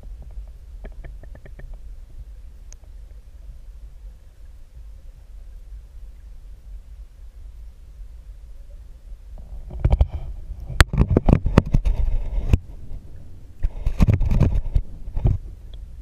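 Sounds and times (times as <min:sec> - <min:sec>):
muffled underwater rumbling: 0:00.0 - 0:16.0
knocks and scrapes on camera housing: 0:09.7 - 0:12.6, 0:13.6 - 0:15.4.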